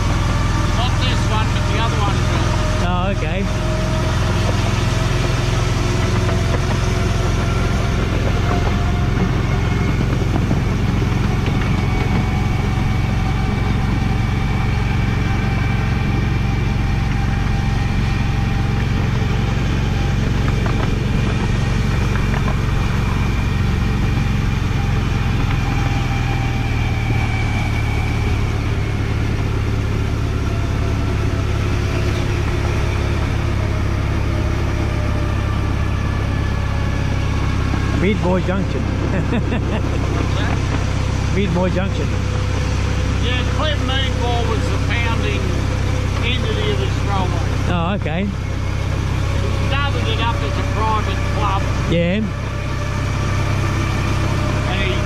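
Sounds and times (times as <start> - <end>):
locomotive engine drone: 0.0 - 55.0.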